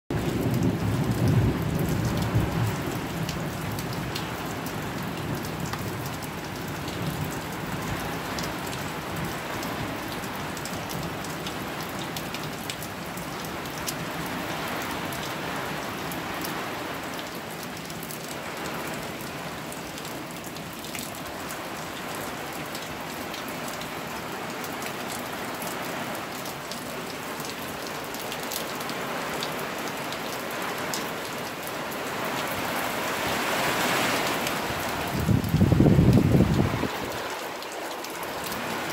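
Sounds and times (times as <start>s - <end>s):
low rumble of thunder: 0.1s - 4.2s, 35.1s - 37.0s
heavy rain: 0.1s - 38.9s.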